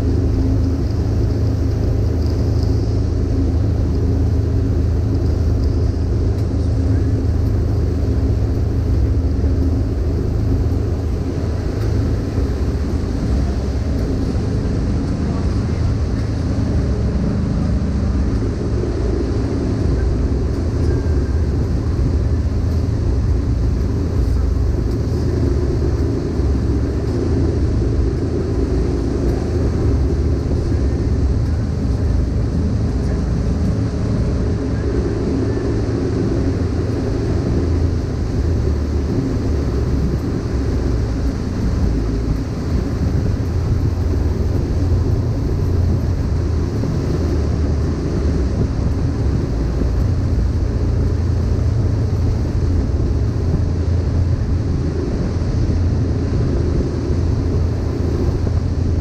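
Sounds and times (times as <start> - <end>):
boat engine rumble: 0.0 - 59.0.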